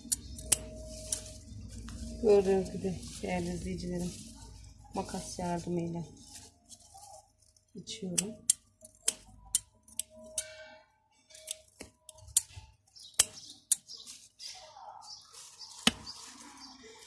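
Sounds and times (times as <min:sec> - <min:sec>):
scissors snipping stems: 0:00.0 - 0:04.4, 0:07.0 - 0:10.6, 0:11.3 - 0:14.3.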